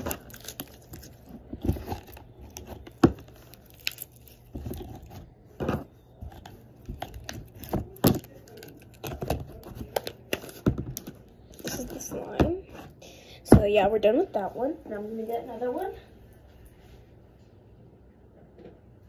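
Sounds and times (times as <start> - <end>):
slime crackling and squishing: 0.0 - 12.1.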